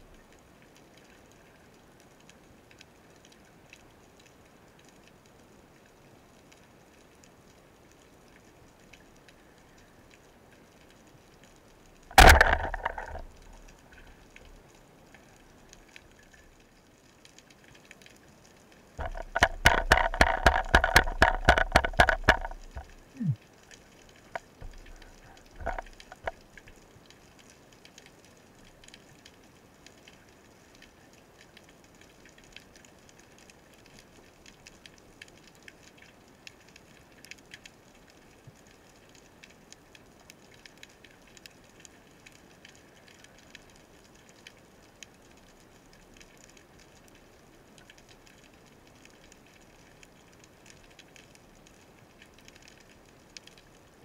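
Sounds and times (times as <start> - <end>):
underwater reef crackling: 0.0 - 54.0
underwater knocks: 12.1 - 13.6, 19.0 - 23.0, 24.3 - 26.4.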